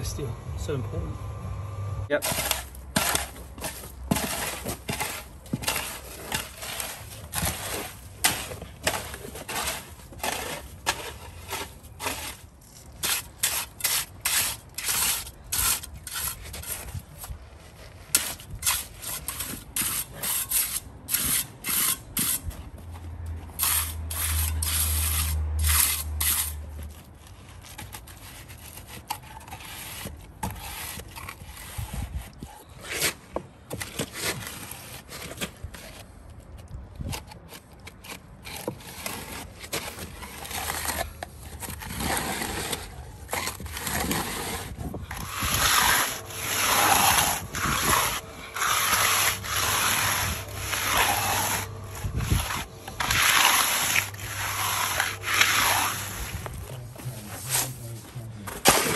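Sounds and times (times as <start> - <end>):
low hum: 0.0 - 2.1
trowel scraping concrete: 2.1 - 36.4, 37.0 - 58.9.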